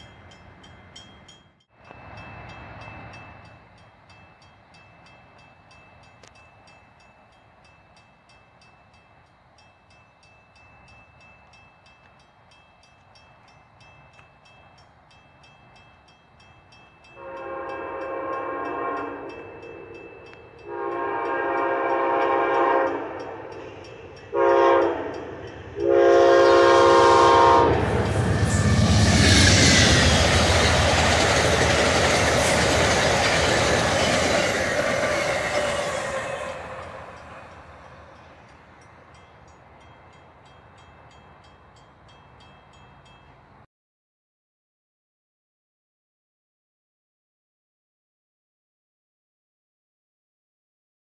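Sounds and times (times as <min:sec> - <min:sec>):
crossing bell ringing: 0:00.0 - 0:43.6
train wheels rumbling on rail: 0:00.0 - 0:43.6
locomotive horn: 0:17.2 - 0:19.4, 0:20.6 - 0:23.6, 0:24.3 - 0:28.9.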